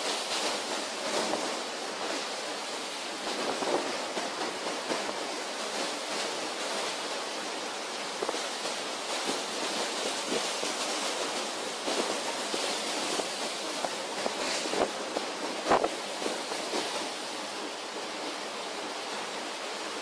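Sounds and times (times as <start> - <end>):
breaking waves and spray: 0.0 - 20.0
wind: 0.0 - 20.0.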